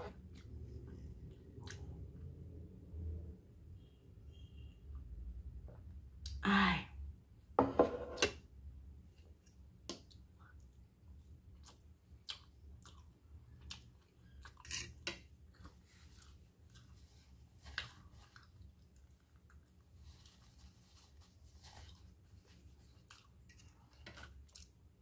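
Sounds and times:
chewing: 0:11.5 - 0:20.4, 0:22.7 - 0:24.8.

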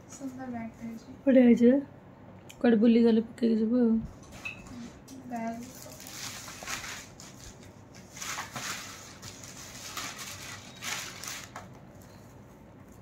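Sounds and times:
plastic bag rustling: 0:04.7 - 0:13.0.

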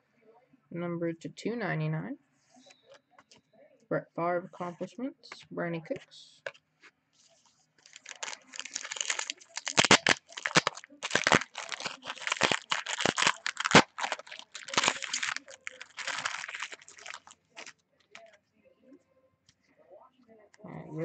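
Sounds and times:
foil wrapper tearing and crinkling: 0:07.8 - 0:18.3.

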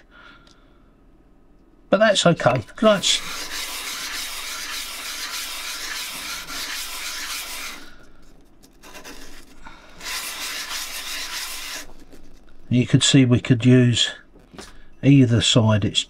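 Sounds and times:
metal plate sanding on sandpaper: 0:02.7 - 0:12.7.

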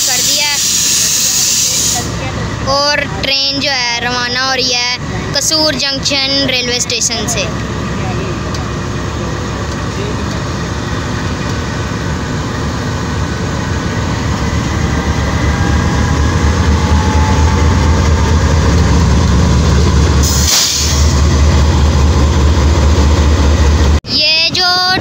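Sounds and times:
diesel locomotive engine drone: 0:00.0 - 0:25.0
short burst of hiss: 0:20.2 - 0:21.2.

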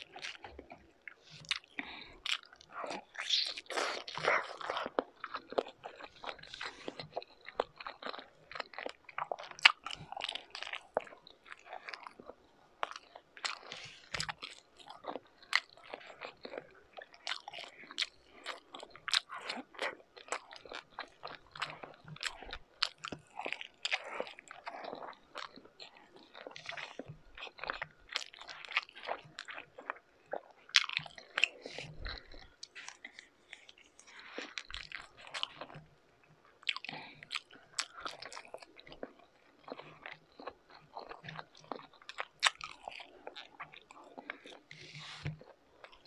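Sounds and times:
person chewing food: 0:00.0 - 0:46.0.

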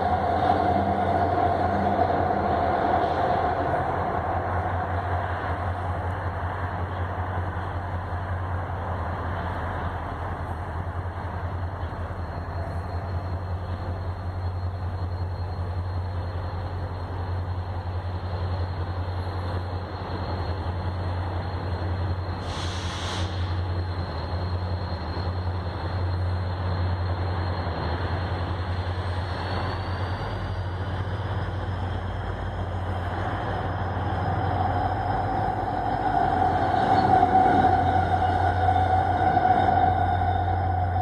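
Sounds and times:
diesel locomotives rumbling: 0:00.0 - 0:41.0
brief hiss: 0:22.4 - 0:23.5.

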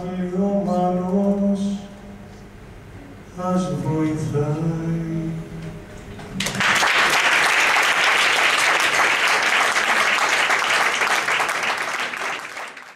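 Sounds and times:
audience applauding: 0:06.4 - 0:12.9.

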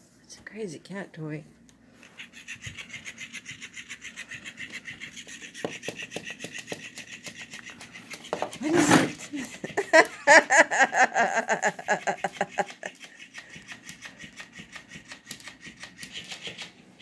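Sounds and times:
robotic toy clicking on wooden floor: 0:02.3 - 0:09.3, 0:12.3 - 0:16.7
woman laughing: 0:08.6 - 0:13.2.

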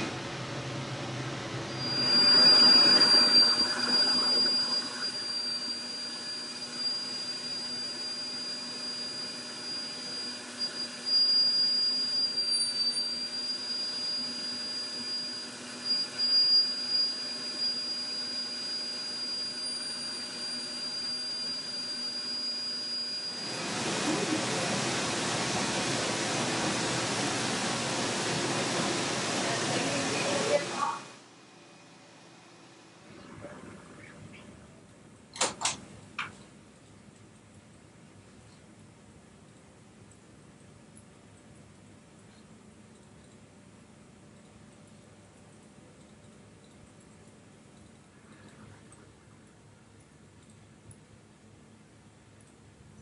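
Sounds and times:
dental drill whining: 0:01.7 - 0:29.4.

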